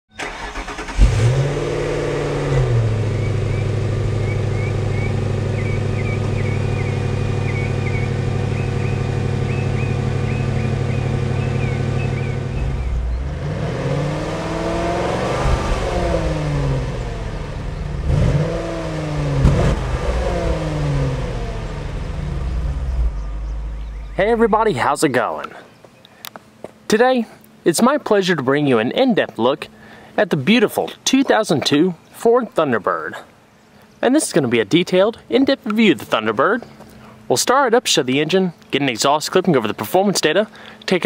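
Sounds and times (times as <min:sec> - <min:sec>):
car engine starting: 0:00.1 - 0:25.2
car engine revving: 0:00.2 - 0:24.9
car engine idling: 0:00.2 - 0:25.5.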